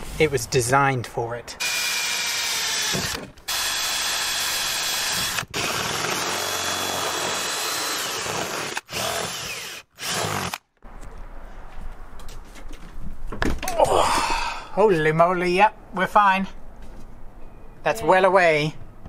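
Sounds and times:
drill boring through sheet metal: 1.6 - 10.6.

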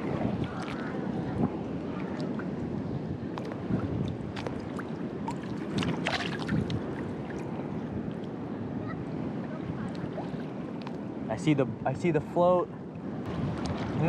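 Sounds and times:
small water splashes: 0.0 - 2.6, 3.3 - 8.3, 9.4 - 11.0
sea water sloshing: 0.0 - 11.2.

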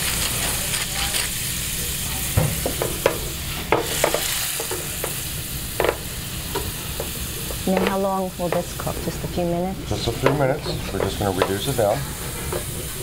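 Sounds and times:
sauce sizzling and bubbling in pan: 0.0 - 13.0.

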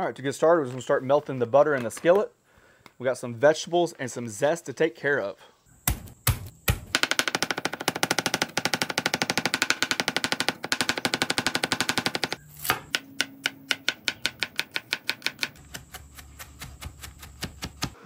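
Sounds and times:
knife chopping on wooden board: 12.2 - 18.0.

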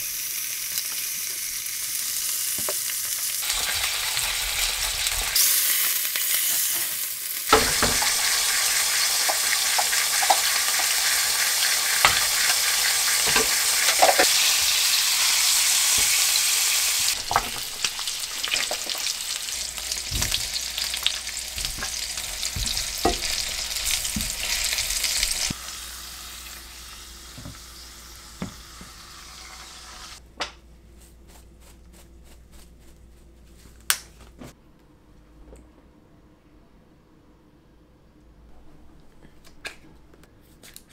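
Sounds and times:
meat sizzling in oil: 0.0 - 30.2.

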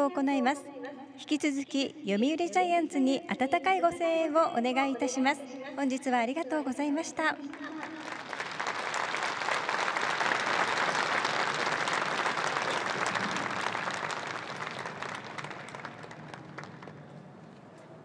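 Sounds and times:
crowd applauding: 7.5 - 17.4.

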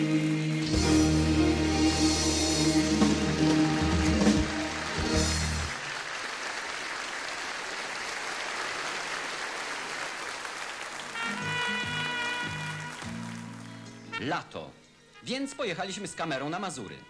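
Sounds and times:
audience applauding: 0.0 - 14.1
stage musical final chord: 0.2 - 5.8.

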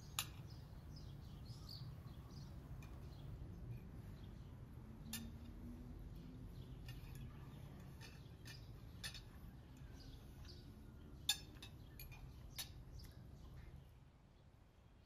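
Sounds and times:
cutlery clinking on plates: 11.2 - 12.8.

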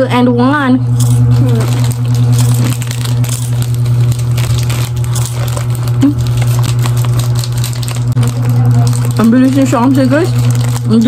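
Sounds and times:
low hum: 0.0 - 11.0
wrappers rustling: 1.0 - 11.0
people chewing crunchy snacks: 1.1 - 11.0.

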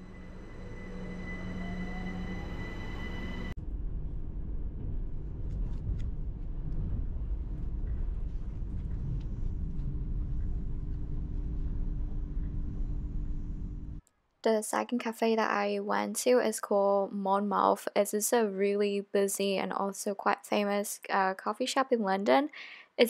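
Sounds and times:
low hum: 0.0 - 14.0
low rumble inside train carriage: 0.0 - 14.0
train whine and motor tone: 0.0 - 14.0.

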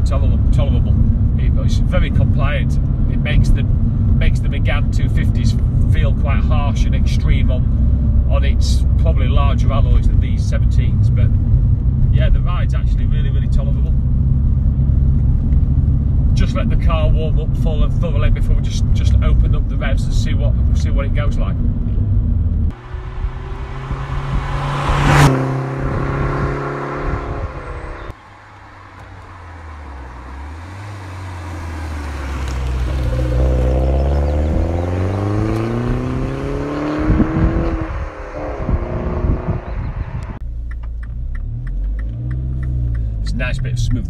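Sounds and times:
car engine accelerating: 0.0 - 44.0.

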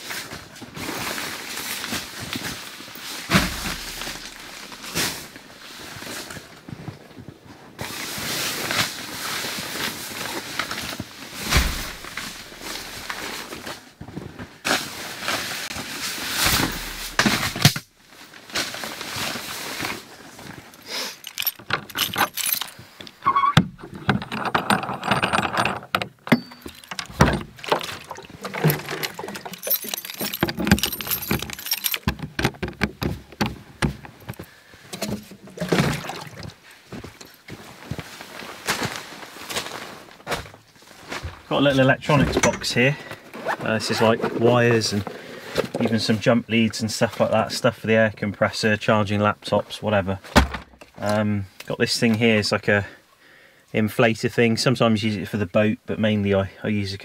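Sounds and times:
bags rustling: 0.3 - 45.0
keys jangling in a lock: 20.8 - 23.2, 23.8 - 34.4.

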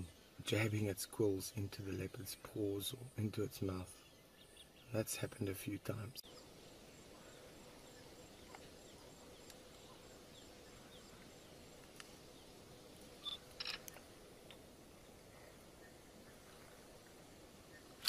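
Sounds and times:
faint background hiss: 0.0 - 18.0
chirp: 1.3 - 12.6, 15.0 - 18.0.

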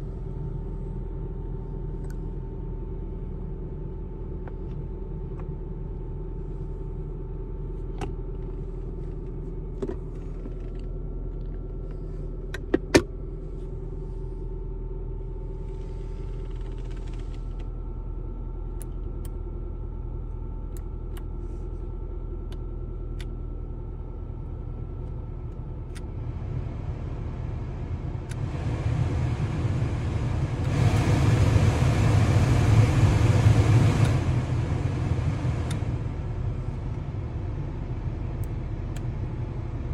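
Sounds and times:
car engine idling: 23.6 - 39.9
heater blower fan rushing air: 24.7 - 39.9.

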